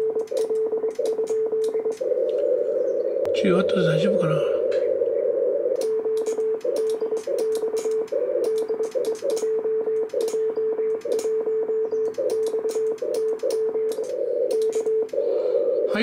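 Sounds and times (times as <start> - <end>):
sharp keying clicks: 0.0 - 2.4, 5.7 - 15.3
morse code tone: 0.0 - 2.7, 5.4 - 16.0
hissy radio band noise: 0.0 - 16.0.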